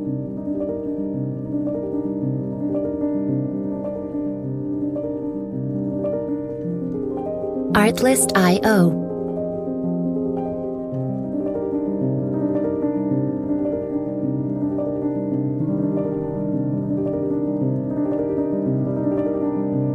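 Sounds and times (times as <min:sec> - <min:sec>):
slow piano tune: 0:09.1 - 0:19.9.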